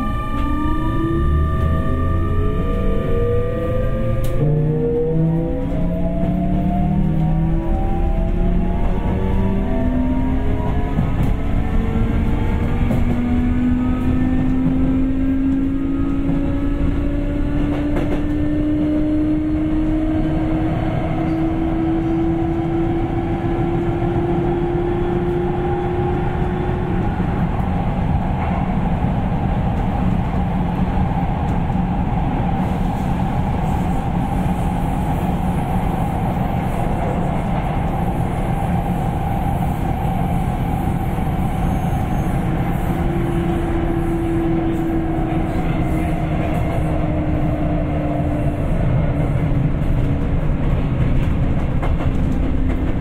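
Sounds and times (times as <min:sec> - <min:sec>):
electric train motor whine: 0:00.0 - 0:19.6
train rumbling on rails: 0:00.0 - 0:53.0.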